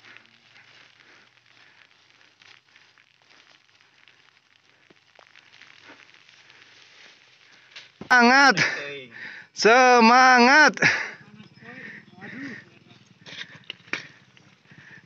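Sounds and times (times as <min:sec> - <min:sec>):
plastic poncho rustling: 0:00.0 - 0:08.8.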